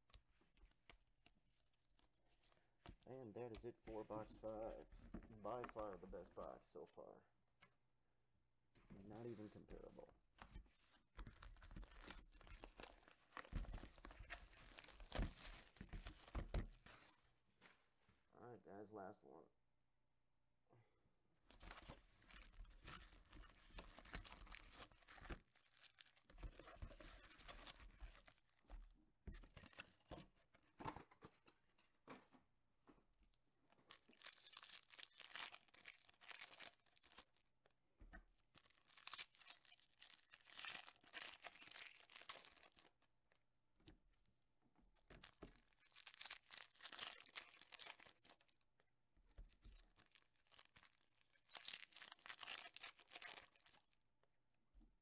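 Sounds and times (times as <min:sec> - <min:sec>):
card packaging crinkling and tearing: 0:11.2 - 0:16.5, 0:21.6 - 0:28.6, 0:33.9 - 0:37.4, 0:38.6 - 0:43.0, 0:45.2 - 0:48.6, 0:49.6 - 0:53.9.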